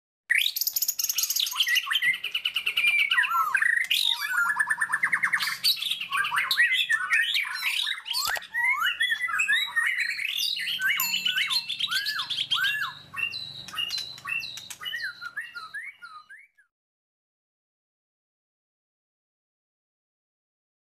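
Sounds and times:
songbird singing trills: 0.4s - 16.6s.

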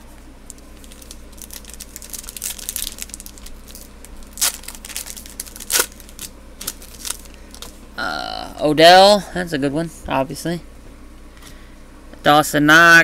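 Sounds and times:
foil wrapper crinkling and tearing: 0.5s - 7.8s.

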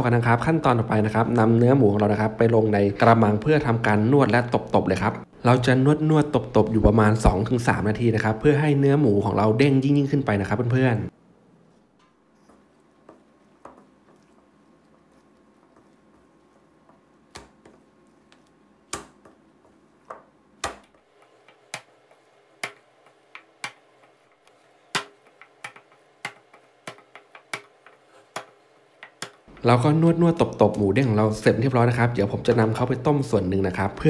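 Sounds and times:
meat paste slapped against steel bowl: 17.3s - 17.8s, 18.9s - 19.4s, 20.6s - 21.9s.

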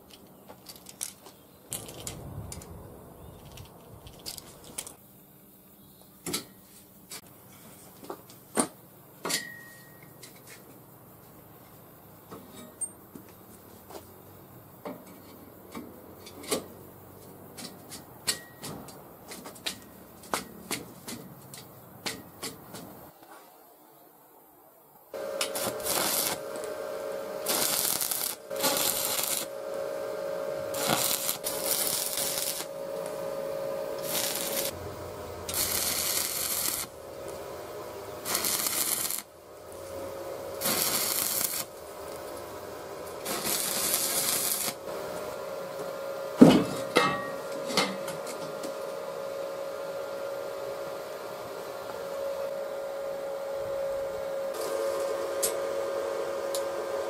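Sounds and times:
steady hum: 25.1s - 57.0s
welding arc crackling and sizzling: 25.2s - 46.9s, 54.5s - 56.8s.

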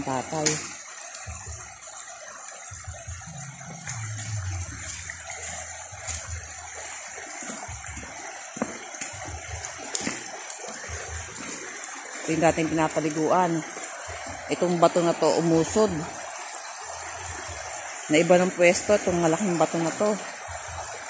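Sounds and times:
creek flowing over stones: 0.0s - 21.0s
low rumbles: 2.7s - 6.8s.

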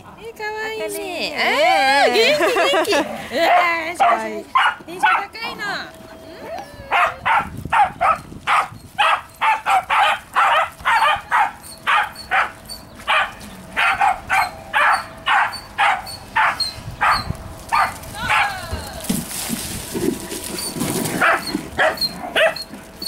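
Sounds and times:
dog barking: 3.5s - 5.3s, 6.9s - 18.5s, 21.2s - 22.6s.

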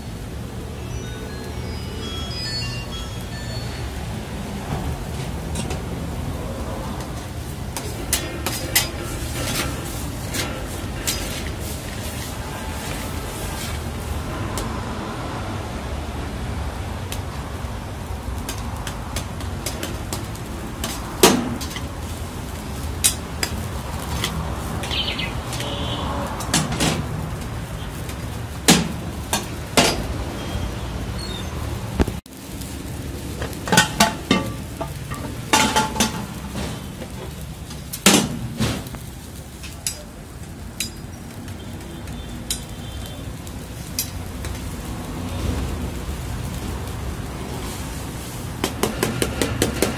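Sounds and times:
spatula scraping metal pan: 7.8s - 13.8s.

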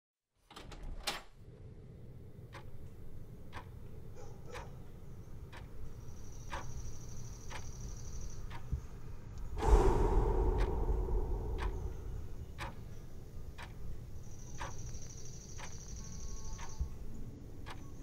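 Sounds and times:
low rumble: 9.5s - 13.0s.

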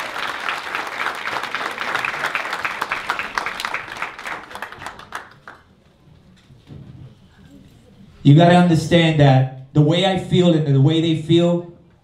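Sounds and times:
audience applauding: 0.0s - 5.8s.

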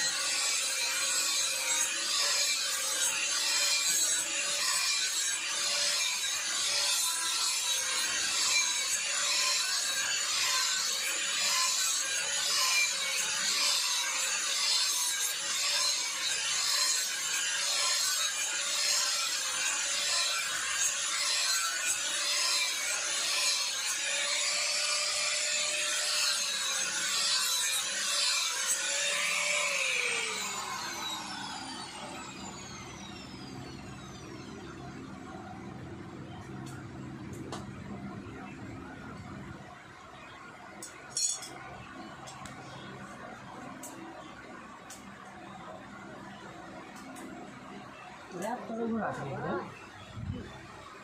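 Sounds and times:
disc grinding steel blade: 0.0s - 35.6s, 40.8s - 44.0s
angle grinder motor whine: 0.0s - 51.0s.

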